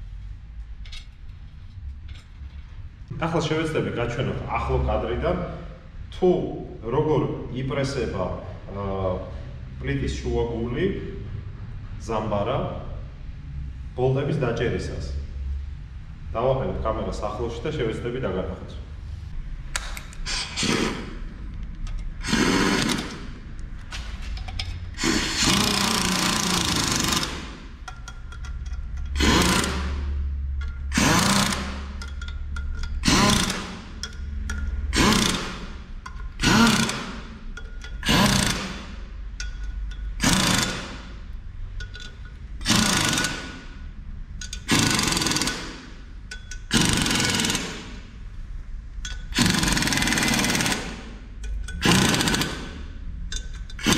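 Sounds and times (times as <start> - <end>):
pneumatic impact wrench bursts: 20.2 - 21.2, 22.2 - 23.4, 24.9 - 27.8, 29.1 - 39.1, 40.1 - 41.3, 41.9 - 48.2, 49.2 - 51.2, 51.8 - 53.9.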